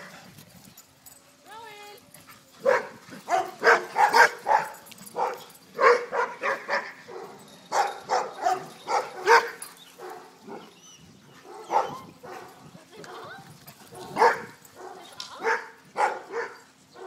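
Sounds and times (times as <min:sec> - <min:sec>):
dog barking: 0:02.6 - 0:10.7, 0:11.4 - 0:12.5, 0:14.0 - 0:16.6.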